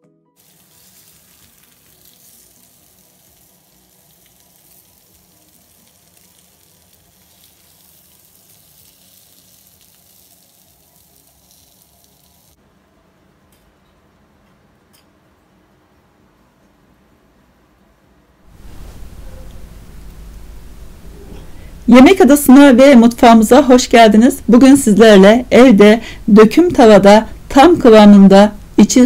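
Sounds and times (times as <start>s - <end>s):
steak sizzling in grill pan: 0.4s - 12.6s, 18.5s - 21.8s.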